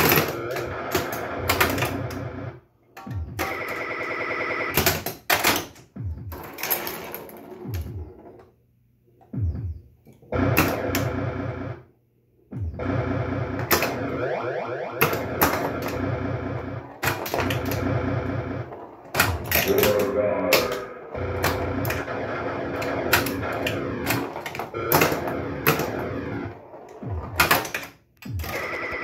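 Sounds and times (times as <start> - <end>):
pinball flippers and bumpers clacking: 0.0 - 2.3, 15.0 - 29.0
electronic game sounds: 0.0 - 5.0, 9.4 - 11.9, 12.5 - 29.0.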